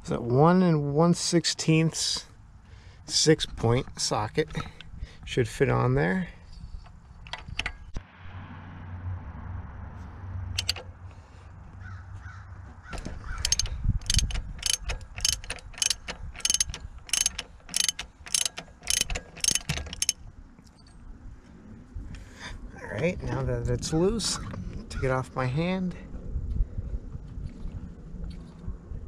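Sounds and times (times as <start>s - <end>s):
hand ratchet clicking: 10.6s - 10.9s, 13.0s - 20.2s.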